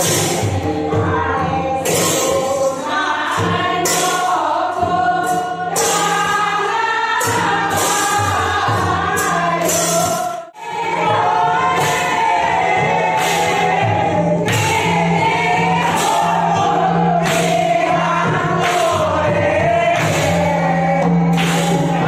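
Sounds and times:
group of voices singing: 0.0 - 22.0
rhythmic accompaniment: 0.0 - 22.0
sharp clap-like strokes: 13.2 - 13.7, 14.4 - 17.8, 18.6 - 19.3, 20.0 - 20.6, 21.3 - 22.0.

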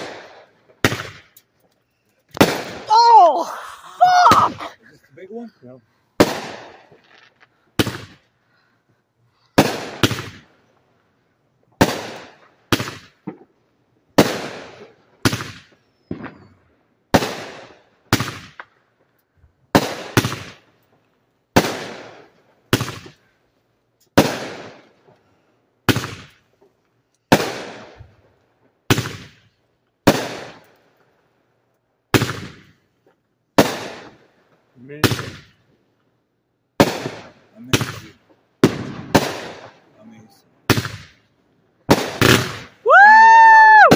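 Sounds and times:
fireworks banging with echo: 0.0 - 1.5, 2.1 - 3.2, 6.2 - 8.7, 9.3 - 10.6, 11.8 - 13.6, 14.2 - 18.8, 19.7 - 20.7, 21.5 - 23.3, 24.1 - 30.8, 32.1 - 35.7, 36.8 - 43.9.

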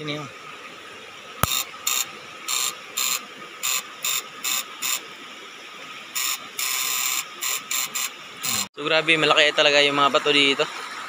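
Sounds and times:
electric circuit buzzing: 1.4 - 5.0, 6.1 - 8.7.

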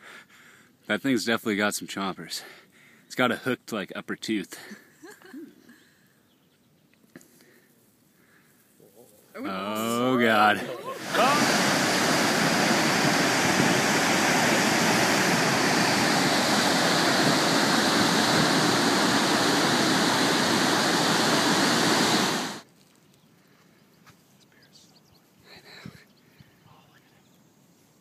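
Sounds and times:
waterfall rushing: 10.2 - 22.6.

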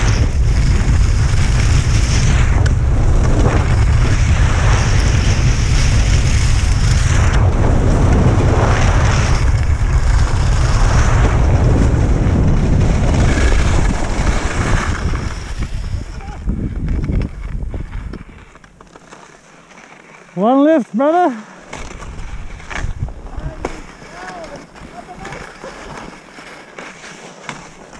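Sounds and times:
wind buffeting microphone: 0.0 - 18.5, 22.0 - 25.4
skis carving over packed snow: 0.0 - 27.9.

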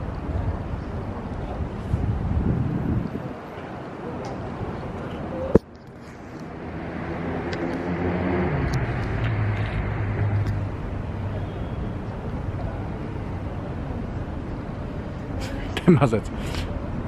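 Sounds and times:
low hum of traffic: 0.0 - 17.0
vehicle passing by: 6.0 - 11.6.

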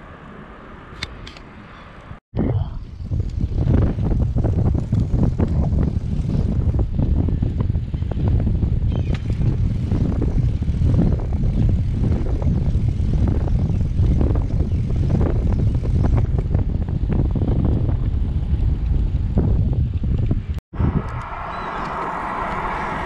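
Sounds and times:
wind buffeting microphone: 2.4 - 23.0
bicycle clicks and rattles: 8.8 - 17.8.

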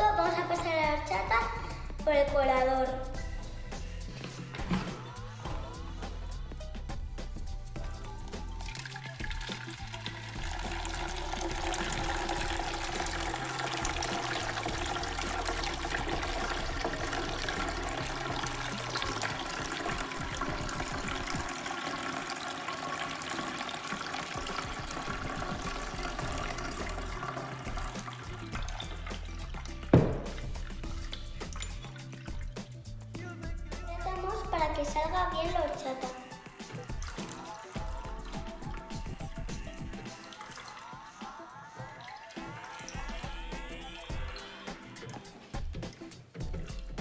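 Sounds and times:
background music: 0.0 - 47.0
liquid pouring through metal strainer: 7.8 - 33.0, 36.5 - 47.0.

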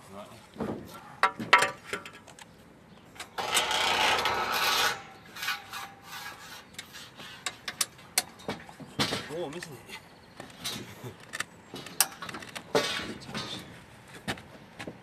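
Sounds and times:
metal-on-metal scrape: 3.2 - 8.0.

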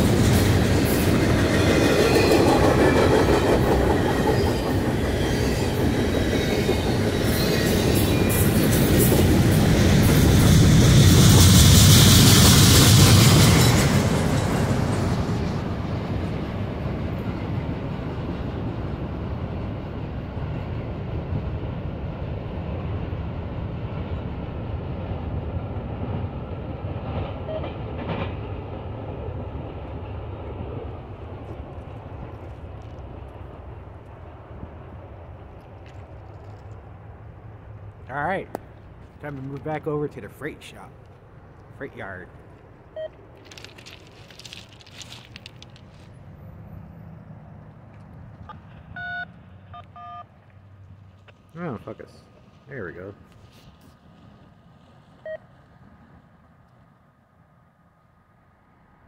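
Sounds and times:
train wheels clattering over rails: 0.0 - 18.8, 26.9 - 28.9.

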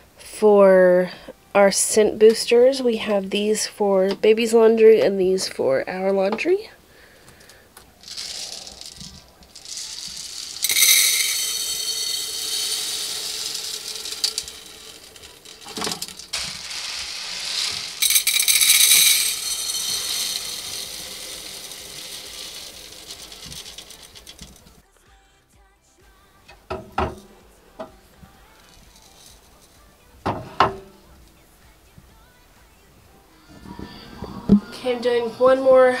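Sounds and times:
beads rattling into glass jars: 8.0 - 24.8, 27.0 - 31.1.

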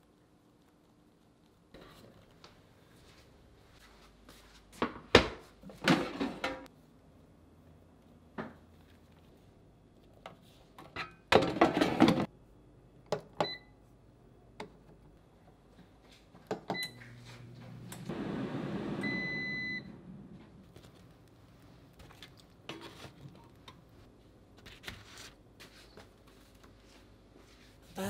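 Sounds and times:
appliance electronic beeps: 13.4 - 13.8, 18.5 - 20.0.

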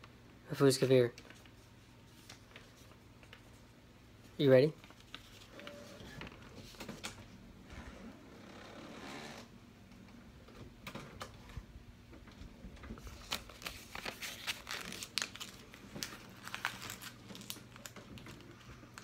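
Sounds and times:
paper crumpling: 4.8 - 5.8, 13.0 - 19.0.

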